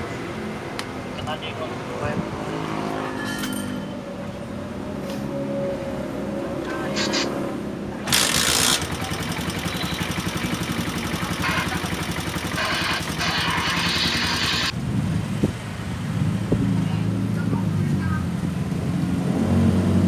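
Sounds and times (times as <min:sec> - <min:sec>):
motorcycle engine running: 0:08.0 - 0:14.8.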